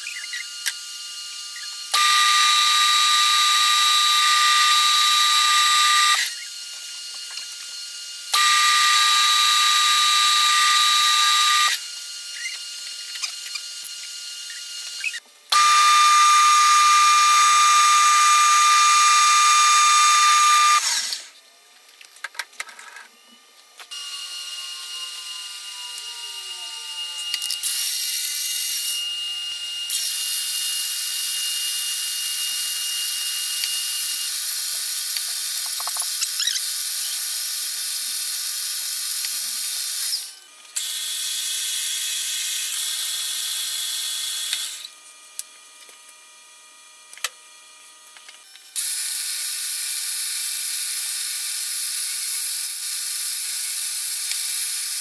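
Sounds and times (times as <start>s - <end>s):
metal lathe whining: 0.0s - 21.4s, 23.9s - 44.9s
drill press boring into metal: 1.6s - 6.5s, 8.3s - 21.3s.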